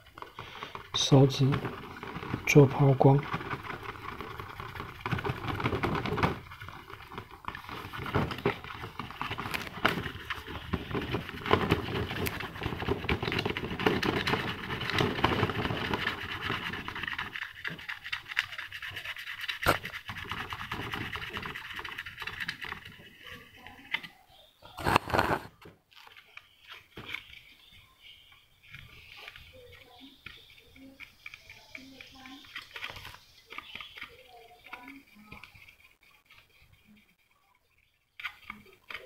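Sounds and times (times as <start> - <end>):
fingertip rubbing plastic: 0.0 - 39.0.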